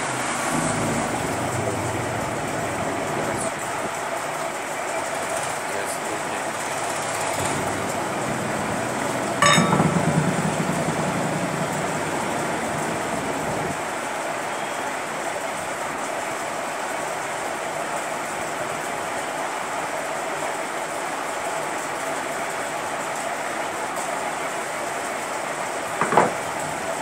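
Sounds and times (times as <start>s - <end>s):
steady rushing background noise: 0.0s - 27.0s
low hum: 7.4s - 13.8s
metal clank: 9.4s - 11.3s.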